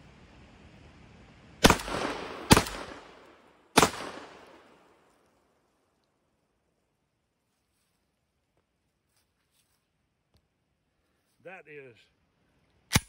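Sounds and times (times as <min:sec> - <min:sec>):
shotgun shots with echo: 0:01.6 - 0:04.8.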